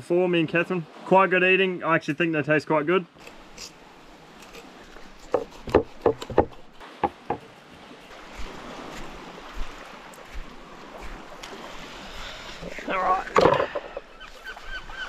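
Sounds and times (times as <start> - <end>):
waves washing on pebble shore: 6.8 - 14.8.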